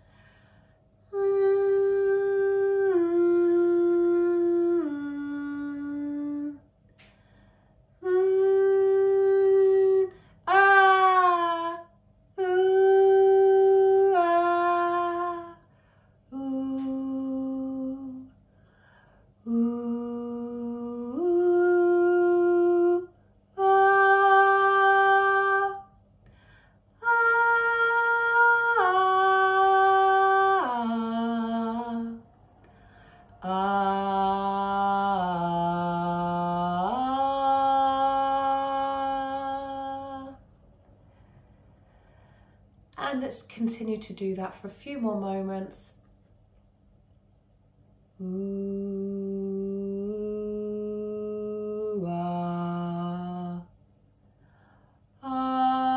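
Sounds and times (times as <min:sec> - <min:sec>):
woman singing held notes: 0:16.3 - 0:18.3, 0:48.2 - 0:53.7.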